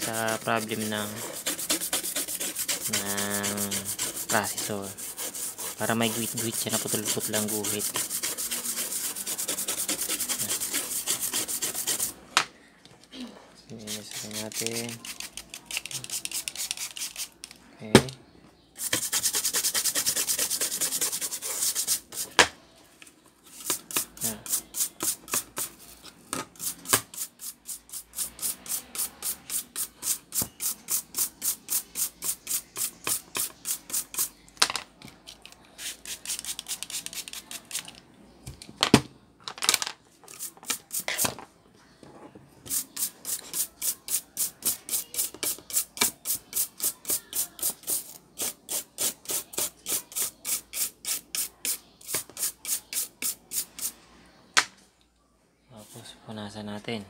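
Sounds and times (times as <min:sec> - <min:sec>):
toothbrush scrubbing circuit board: 0:00.0 - 0:12.1, 0:18.8 - 0:22.1.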